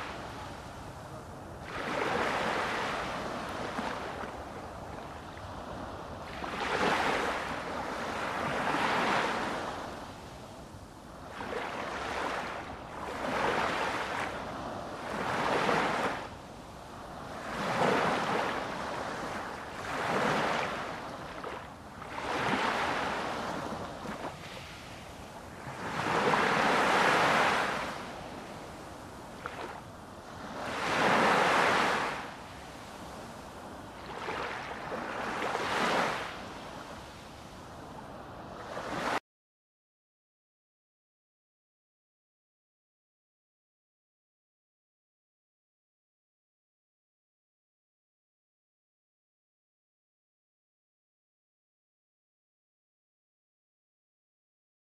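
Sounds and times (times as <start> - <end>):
waves washing in and drawing back: 0.0 - 39.2.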